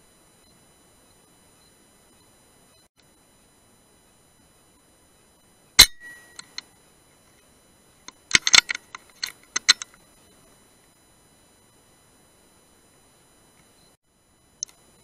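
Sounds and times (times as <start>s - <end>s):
small metallic clicks and clinks: 8.3s - 10.0s.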